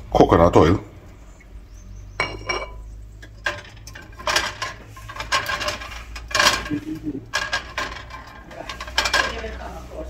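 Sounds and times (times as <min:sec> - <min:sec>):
steel pot scraping on burner coil: 0:02.4 - 0:10.0.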